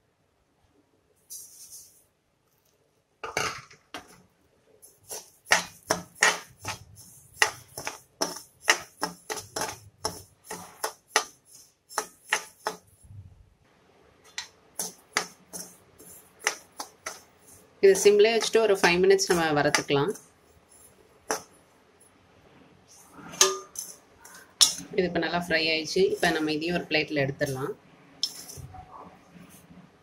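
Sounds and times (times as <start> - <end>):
spoon scraping metal pan: 4.8 - 13.1, 14.3 - 21.6, 22.9 - 28.7.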